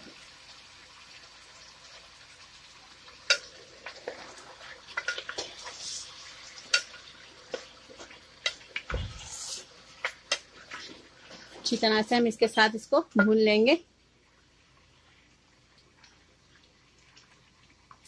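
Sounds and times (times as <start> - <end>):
meat sizzling in hot oil: 0.0 - 12.8
low thump: 8.9 - 9.2.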